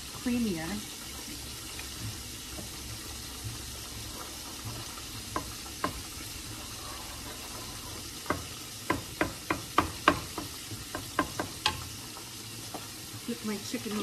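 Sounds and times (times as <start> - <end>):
frying sizzle: 0.0 - 14.0
wooden spoon stirring sauce: 0.9 - 14.0
spoon knocking on pot: 4.7 - 6.1, 8.2 - 11.9.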